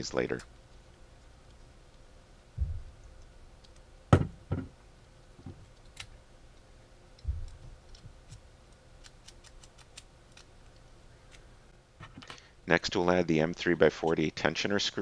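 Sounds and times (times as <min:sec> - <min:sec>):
dull thumps on wooden table: 0:04.1 - 0:04.8.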